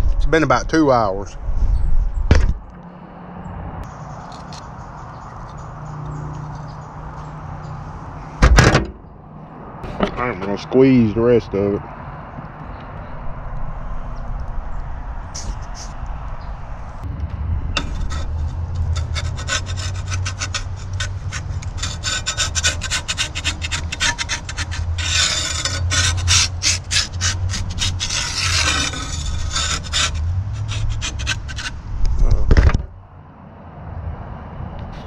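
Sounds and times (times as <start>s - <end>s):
heavy thump: 8.4s - 9.0s
metal spatula scraping grill grate: 17.8s - 31.8s.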